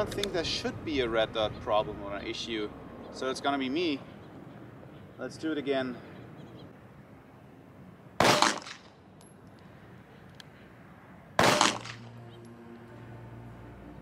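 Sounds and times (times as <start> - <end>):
pistol shots: 8.2 - 8.9, 11.4 - 12.1.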